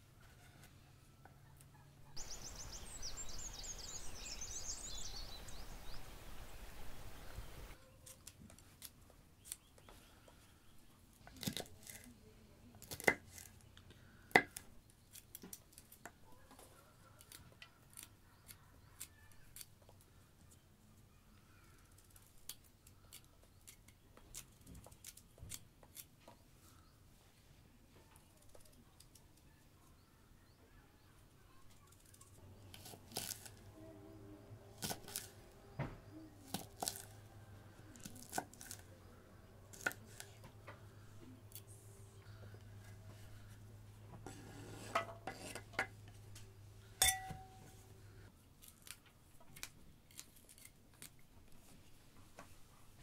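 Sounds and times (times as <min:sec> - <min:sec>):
high chirping: 0:02.0 - 0:06.4
steady hiss: 0:02.2 - 0:07.8
knife cutting radish: 0:11.3 - 0:12.1, 0:12.8 - 0:13.5, 0:32.7 - 0:33.6, 0:34.7 - 0:35.5, 0:36.1 - 0:37.2, 0:37.9 - 0:38.9, 0:39.7 - 0:40.4, 0:44.2 - 0:45.8, 0:49.6 - 0:51.1.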